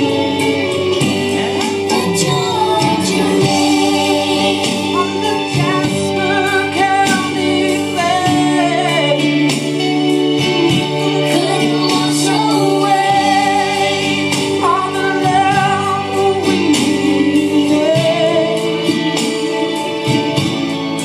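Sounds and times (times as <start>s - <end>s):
country song with singing: 0.0s - 21.0s.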